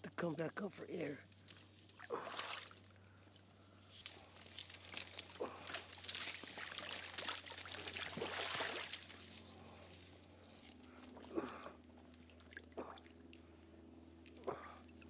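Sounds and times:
water splashing: 1.4s - 2.9s, 4.5s - 9.7s
reeds rustling and crackling: 3.8s - 11.2s.

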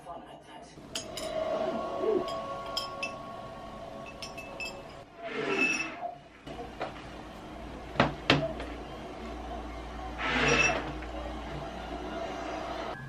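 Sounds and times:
ice clinking in glass: 4.1s - 5.0s.

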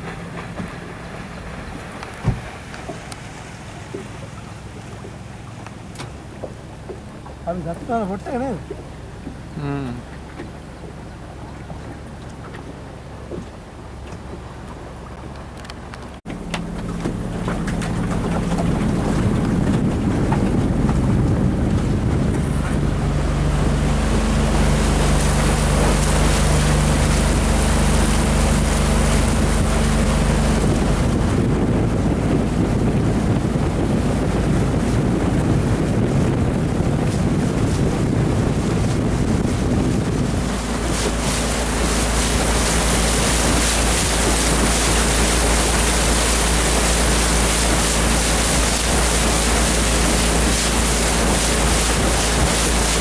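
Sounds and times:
outboard motor running: 0.0s - 53.0s
water rushing along hull: 0.0s - 53.0s
wind buffeting microphone: 15.8s - 53.0s.

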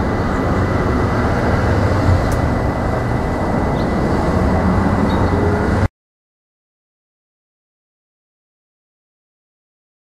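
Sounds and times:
low traffic rumble: 0.0s - 5.9s.

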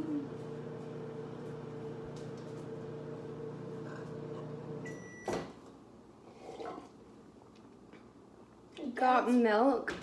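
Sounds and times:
microwave oven humming: 0.0s - 5.6s
microwave beep: 3.5s - 5.5s.

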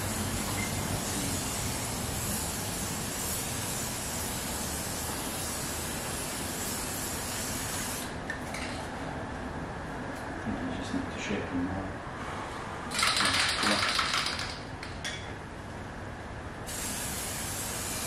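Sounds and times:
aerosol can spraying: 0.0s - 8.2s, 16.7s - 18.0s.

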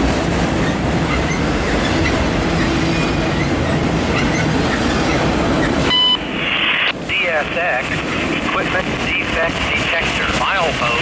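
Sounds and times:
freight train wheels rumbling: 0.0s - 11.0s
wheel squeaks: 2.9s - 5.2s.

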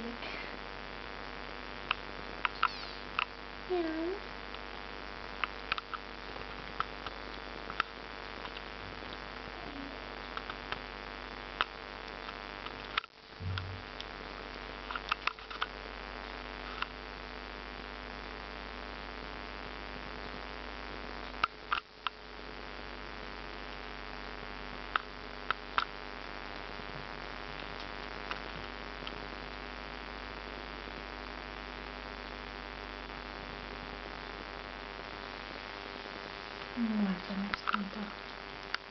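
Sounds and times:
electrical mains hum with hiss: 0.0s - 38.9s
sharp clicks: 1.9s - 3.3s
low thump: 13.4s - 13.9s.

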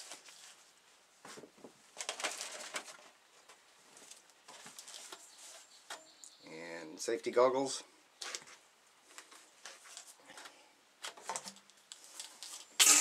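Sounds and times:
rustling and handling noises: 0.0s - 6.4s, 8.2s - 12.8s.

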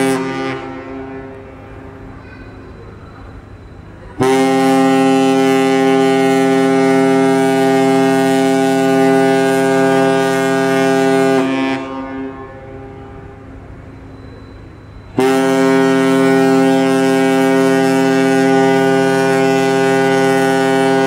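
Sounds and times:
ship's horn blast: 0.0s - 1.5s, 4.2s - 13.6s, 15.1s - 21.0s.

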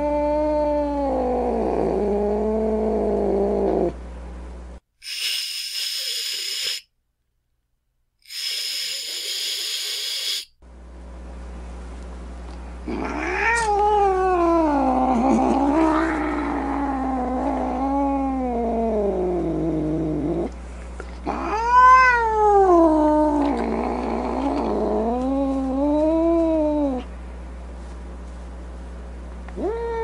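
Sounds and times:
cat hissing: 5.0s - 6.9s, 8.2s - 10.5s
cat yowling: 12.9s - 18.7s, 21.3s - 27.1s, 29.6s - 30.0s.

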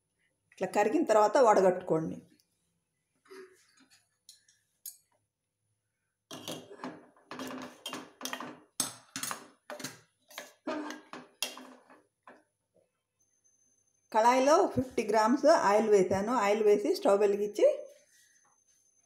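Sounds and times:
metal spoon scraping a steel pot: 6.3s - 8.4s.

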